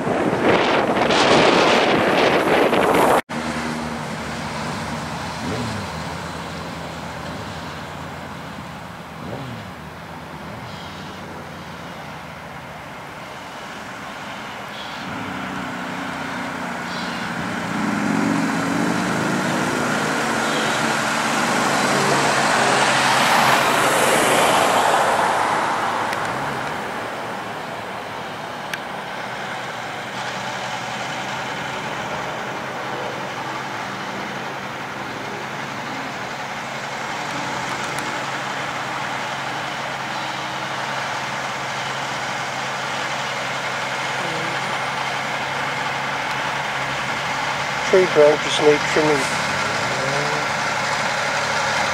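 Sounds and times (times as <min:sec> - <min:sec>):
low engine drone: 0:00.0 - 0:51.9
vehicle driving past: 0:14.2 - 0:41.2.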